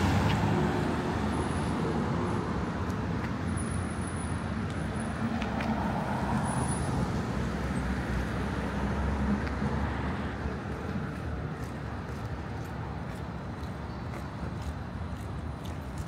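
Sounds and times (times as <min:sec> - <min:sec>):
passing motor vehicles: 0:00.0 - 0:16.0.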